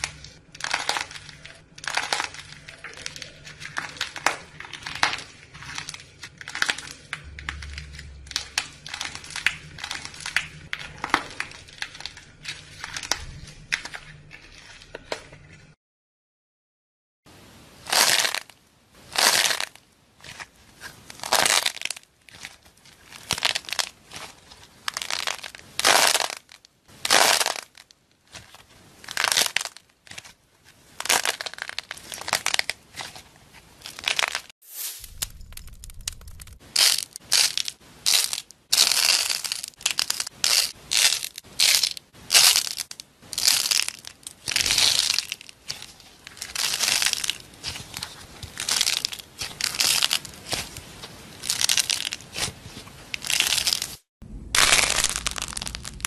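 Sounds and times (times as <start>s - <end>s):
dried clay crackling and crunching: 0.0s - 15.8s, 17.9s - 56.0s.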